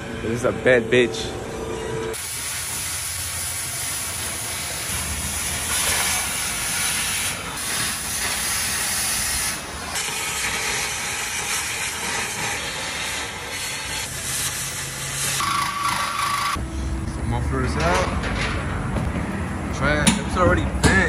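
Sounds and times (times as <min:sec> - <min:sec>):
cutting torch hissing: 0:02.2 - 0:16.6.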